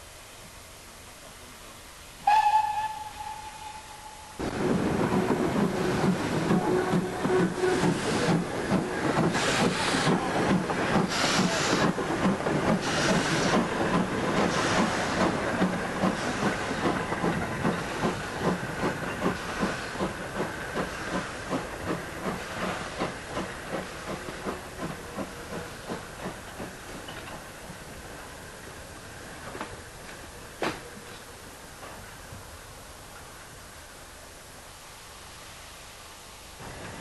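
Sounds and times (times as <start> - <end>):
steam hissing: 0.0 - 37.0
steam locomotive chuffing: 2.2 - 27.8.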